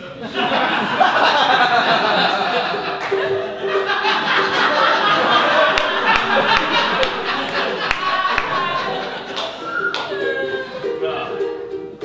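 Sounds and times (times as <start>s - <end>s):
audience laughing and chattering: 0.0s - 11.2s
live music: 3.0s - 12.0s.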